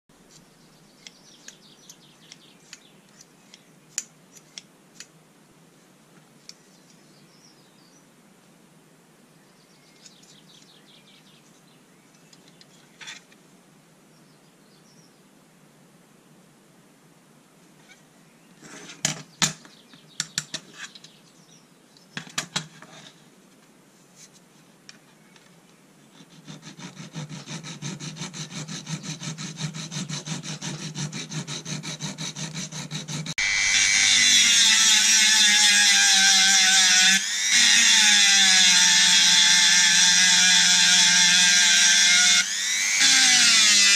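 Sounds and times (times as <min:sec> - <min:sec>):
file rasping on metal: 0:26.1 - 0:42.4
rotary tool high whine: 0:29.0 - 0:43.9.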